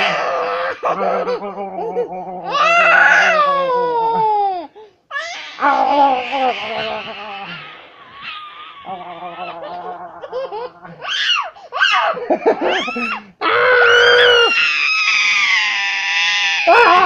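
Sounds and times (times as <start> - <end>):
toddler laughing and squealing: 2.4 - 17.0.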